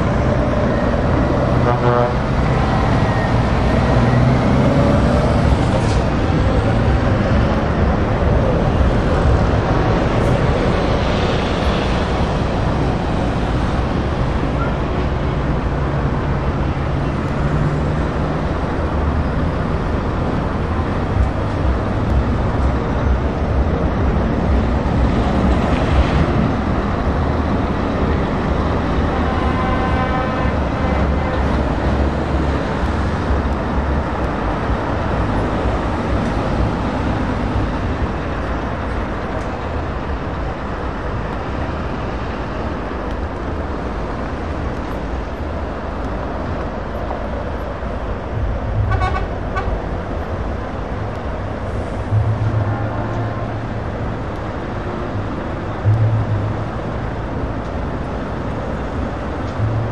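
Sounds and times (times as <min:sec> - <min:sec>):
truck engine pulling away: 0:00.0 - 0:11.2.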